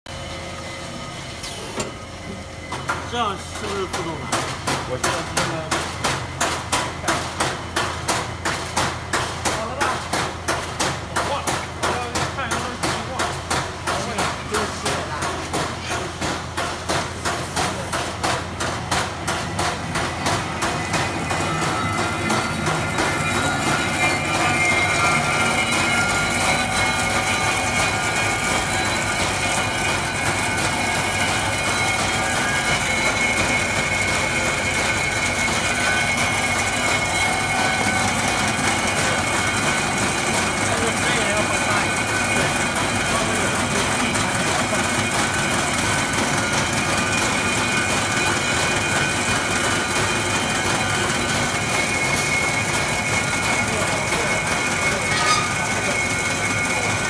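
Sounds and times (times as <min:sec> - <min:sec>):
machine running with high whine: 0:00.1 - 0:57.0
vibrating tray shaking parts: 0:03.0 - 0:57.0.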